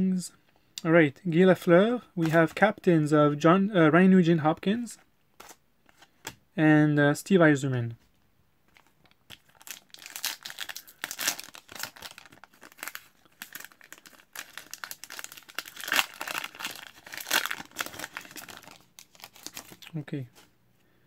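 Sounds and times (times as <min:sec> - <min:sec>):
foil wrapper tearing and crinkling: 0:08.8 - 0:19.9.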